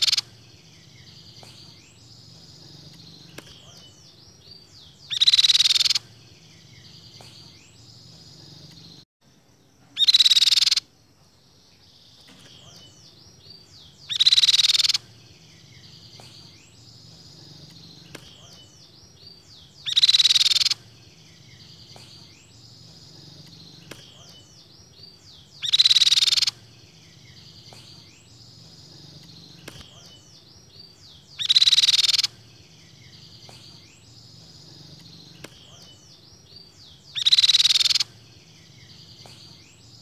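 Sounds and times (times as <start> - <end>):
bird giving harsh call: 0.0 - 0.3, 5.0 - 6.0, 10.0 - 10.9, 14.1 - 15.0, 19.8 - 20.8, 25.6 - 26.6, 31.4 - 32.3, 37.1 - 38.1
faint bird chirps and whistles: 0.0 - 9.0, 9.9 - 10.9, 11.7 - 40.0.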